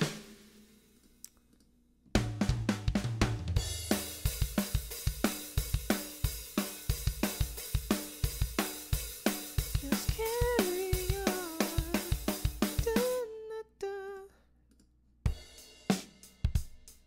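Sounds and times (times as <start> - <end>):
acoustic drum kit loop: 0.0 - 0.8, 2.2 - 13.3, 15.3 - 17.0.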